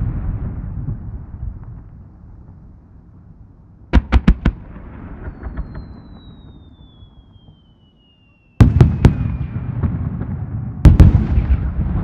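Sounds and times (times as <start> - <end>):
firework booms: 0.0 - 2.6, 3.9 - 7.8, 8.6 - 12.0
firework crackling: 4.0 - 10.3.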